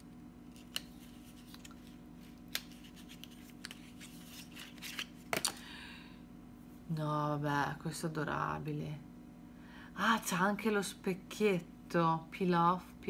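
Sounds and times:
packaging scratching and rustling: 0.5 - 5.3.

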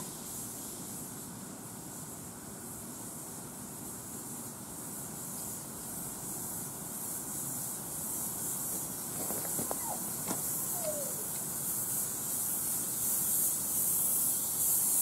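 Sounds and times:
steam hissing from locomotive: 0.0 - 15.0.

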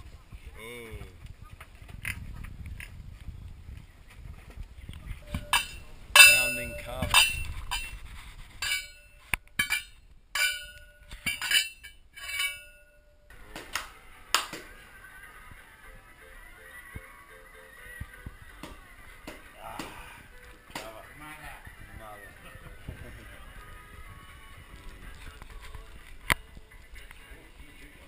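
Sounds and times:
pole clanging in metal mortar: 5.2 - 8.0, 8.6 - 13.1.

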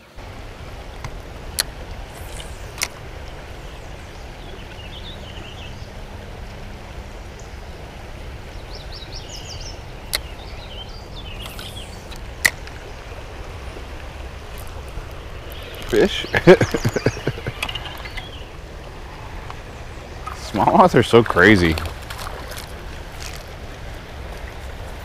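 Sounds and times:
river flowing over riffles: 0.0 - 25.0
birds chirping: 2.2 - 6.0, 8.4 - 23.5.

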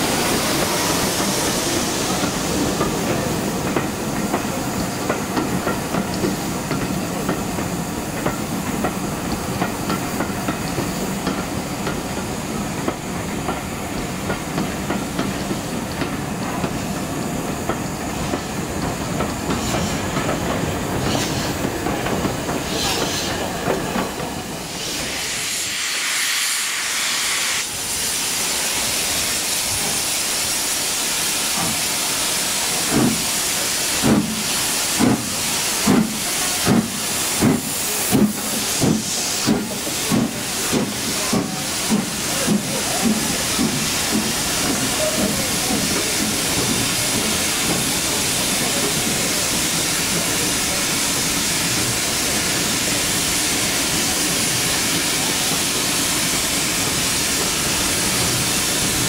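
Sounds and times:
steam hissing: 0.0 - 59.0
steam locomotive exhaust beats: 0.0 - 59.0
train rumbling along rails: 0.0 - 59.0.

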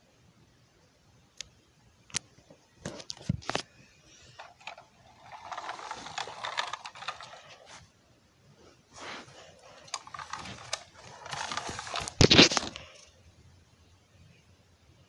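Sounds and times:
plastic toy rattling scrape: 4.3 - 7.8, 9.0 - 13.1
plastic toy truck clicks and knocks: 4.4 - 7.6, 9.7 - 13.0.

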